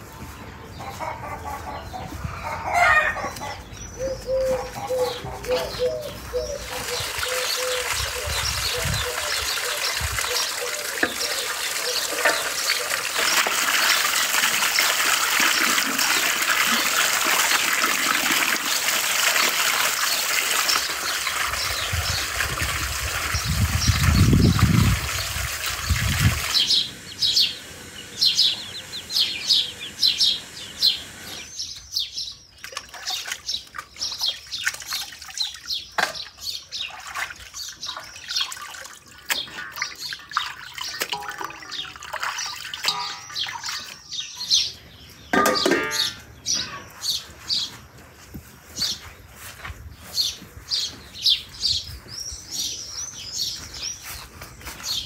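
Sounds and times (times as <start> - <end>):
birds chirping: 0.0 - 55.0
wet meat slapping into colander: 6.7 - 25.2, 36.9 - 44.0
water pouring into a bowl: 6.7 - 26.6, 36.8 - 44.0.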